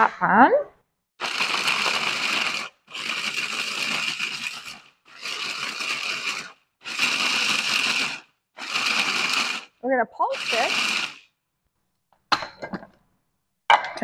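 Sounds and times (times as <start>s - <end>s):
food processor motor whining: 1.2s - 11.2s.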